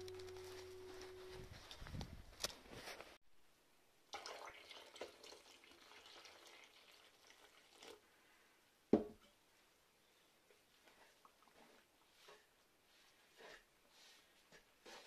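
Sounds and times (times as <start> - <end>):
water trickling into a bowl: 4.1 - 8.0.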